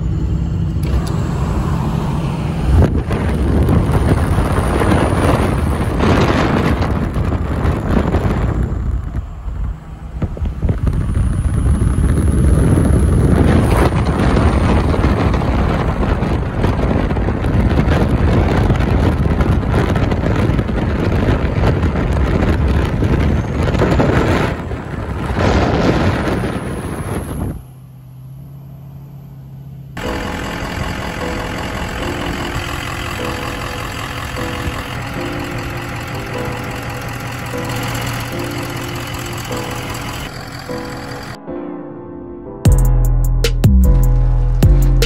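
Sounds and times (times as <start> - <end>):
road and tyre noise: 0.0 - 41.5
wind buffeting microphone: 2.2 - 27.7.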